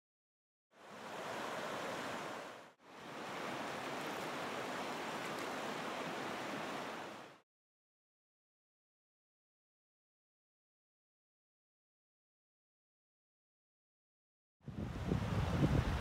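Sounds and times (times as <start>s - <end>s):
river water rushing: 0.8s - 7.4s.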